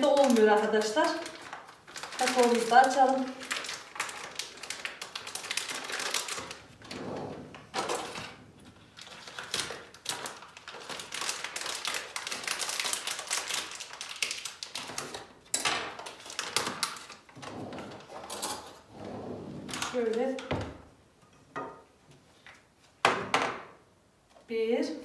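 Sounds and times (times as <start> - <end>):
packet crinkling and rustling: 0.0 - 6.8, 7.8 - 18.5.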